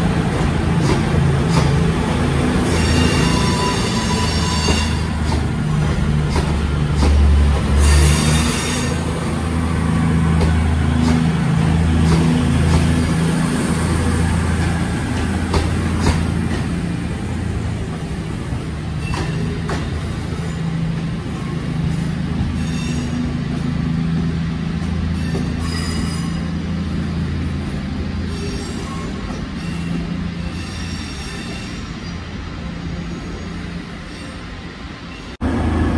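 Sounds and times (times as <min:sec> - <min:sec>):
train diesel engines droning: 0:00.0 - 0:35.9.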